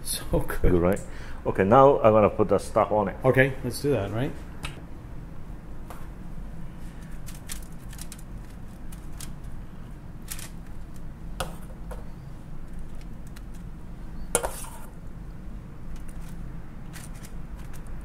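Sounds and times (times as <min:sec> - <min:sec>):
steady low hum: 0:00.0 - 0:18.0
metal spoon scraping shell and foil: 0:14.4 - 0:15.0.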